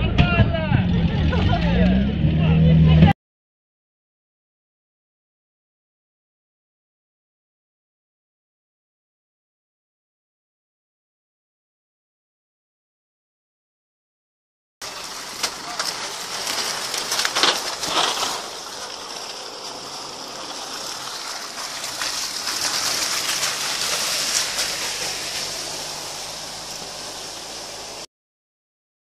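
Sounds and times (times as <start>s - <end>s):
vehicle splashing through mud: 0.2s - 3.1s, 14.8s - 28.1s
faint engine hum: 14.8s - 28.0s.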